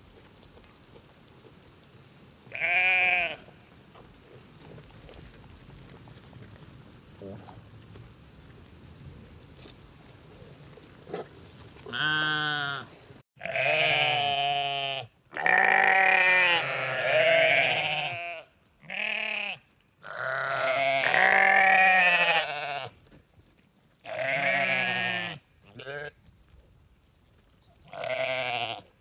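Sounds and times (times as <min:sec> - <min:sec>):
sheep bleating: 0:02.5 - 0:03.5, 0:11.9 - 0:22.9, 0:24.1 - 0:26.2, 0:27.9 - 0:28.9.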